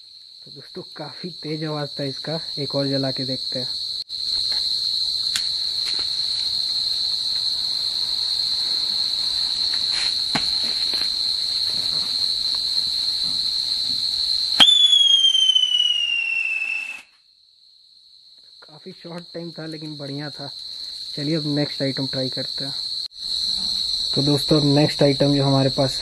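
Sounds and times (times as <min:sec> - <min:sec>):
crickets trilling: 0:00.0 - 0:26.0
firework whistle sliding down: 0:14.6 - 0:17.1.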